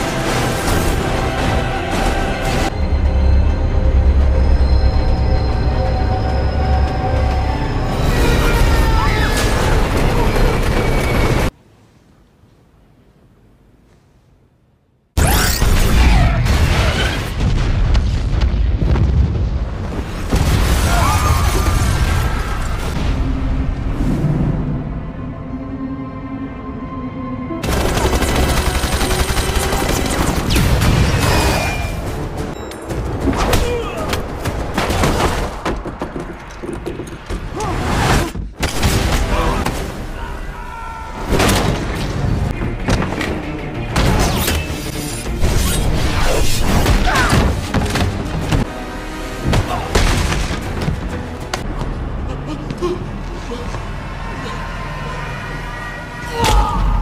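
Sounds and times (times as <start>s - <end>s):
people shouting: 8.0s - 10.2s, 39.2s - 41.4s, 54.2s - 57.0s.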